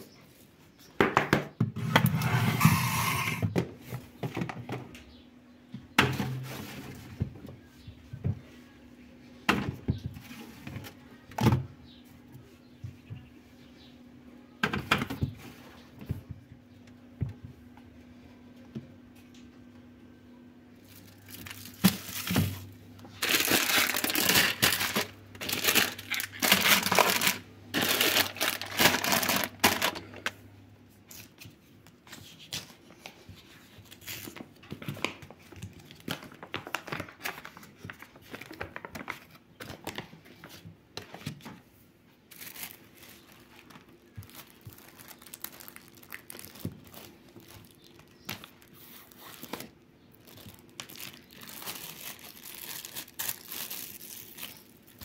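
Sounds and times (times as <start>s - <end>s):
packaging crinkling and tearing: 20.8s - 30.4s, 33.8s - 40.1s, 42.3s - 55.0s.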